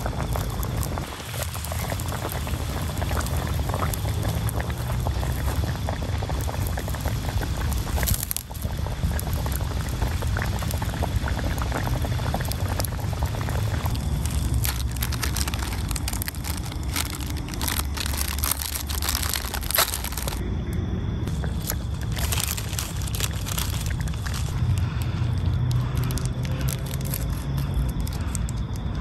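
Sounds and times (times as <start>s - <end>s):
soup boiling in a wok: 0.0s - 20.4s, 21.3s - 28.8s
plastic wrapper crinkling: 12.0s - 20.4s, 21.3s - 28.6s.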